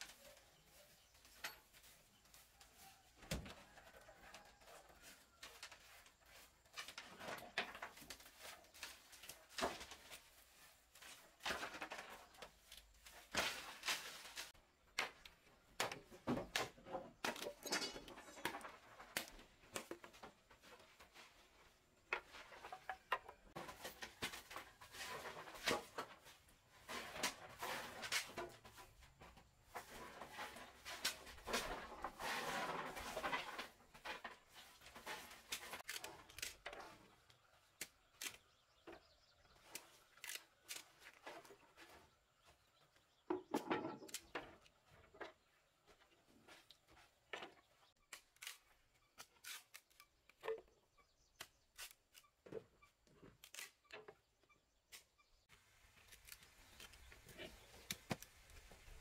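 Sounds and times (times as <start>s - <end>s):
broom sweeping plank floor: 5.0s - 14.6s, 23.5s - 37.0s.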